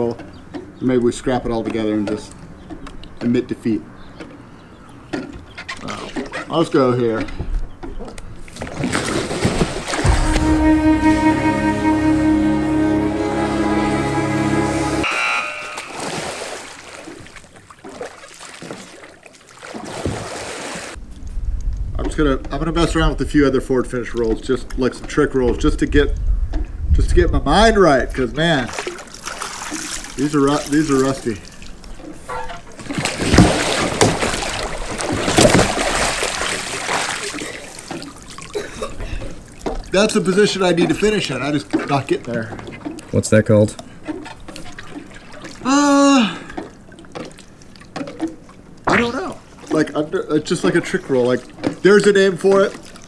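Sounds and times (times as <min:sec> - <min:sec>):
water splashing and sloshing: 0:00.0 - 0:26.9, 0:27.8 - 0:53.0
paddle sweeping through water: 0:08.4 - 0:12.3, 0:31.4 - 0:38.6.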